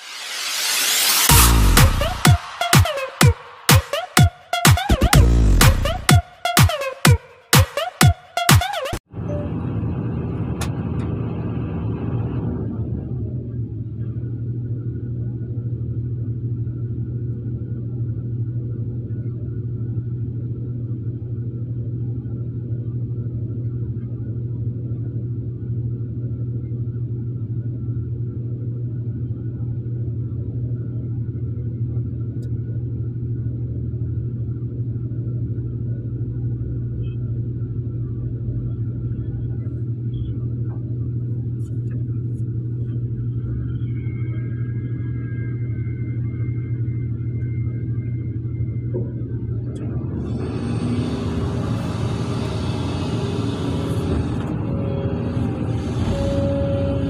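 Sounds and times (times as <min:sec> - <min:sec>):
diesel engines droning: 0:09.1 - 0:15.4, 0:36.2 - 0:57.0.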